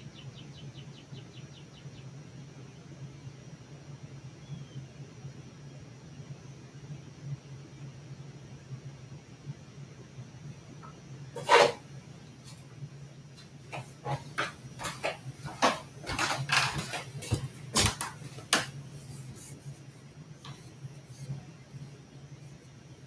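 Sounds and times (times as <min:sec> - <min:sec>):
clicks taps and rustling: 0:13.4 - 0:18.8.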